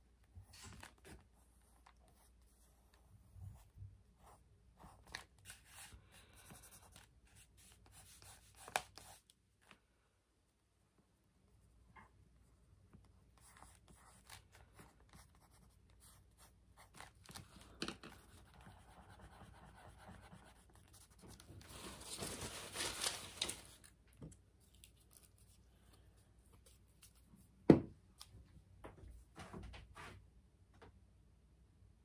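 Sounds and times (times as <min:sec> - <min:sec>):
pen scratching on paper: 0:13.1 - 0:17.1, 0:18.1 - 0:21.3
paper towel rustling: 0:21.2 - 0:24.0.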